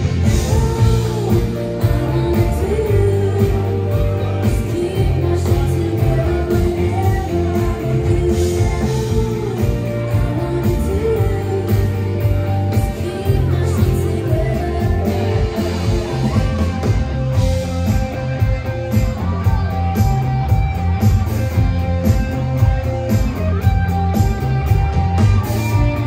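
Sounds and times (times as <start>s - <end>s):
woman singing: 0.0s - 16.6s
live band playing: 0.0s - 26.0s.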